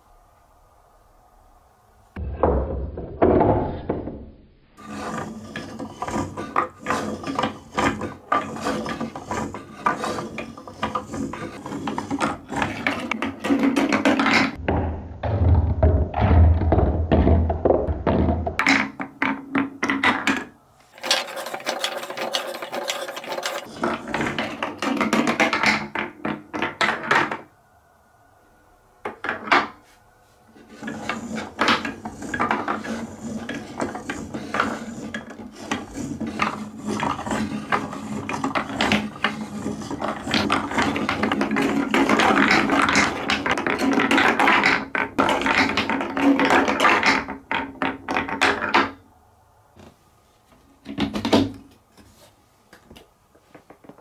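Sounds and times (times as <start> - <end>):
balls knocking on wooden pieces: 4.8 - 27.5, 29.0 - 29.8, 30.7 - 49.0
balls rolling through marble run: 4.8 - 27.5, 30.7 - 49.0.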